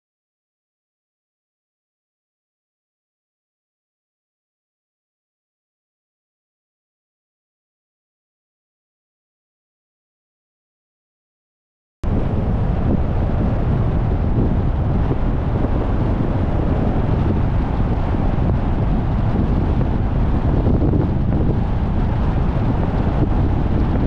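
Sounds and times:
car road noise rumble: 12.0 - 24.0
wind buffeting microphone: 12.0 - 24.0.

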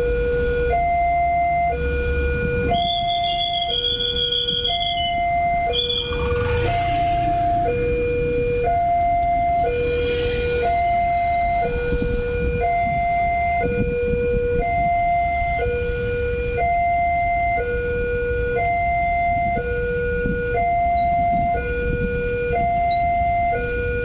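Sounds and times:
road traffic rumble: 0.0 - 24.0
level crossing two-tone alarm: 0.7 - 15.9
motorcycles idling and passing: 3.0 - 11.6.

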